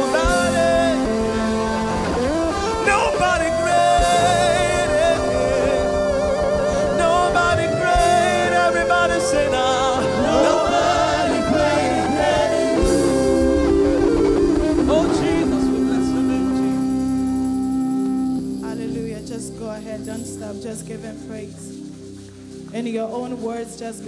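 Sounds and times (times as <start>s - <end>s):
backing singers: 0.0s - 17.2s
man singing lead: 0.0s - 17.3s
instrumental accompaniment: 0.0s - 24.0s.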